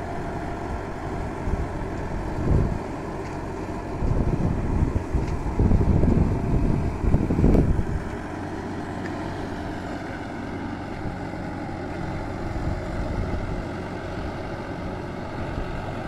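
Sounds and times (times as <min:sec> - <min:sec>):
tractor engine running: 0:00.0 - 0:16.0
wind buffeting microphone: 0:00.7 - 0:02.9, 0:03.8 - 0:08.2, 0:12.2 - 0:14.4.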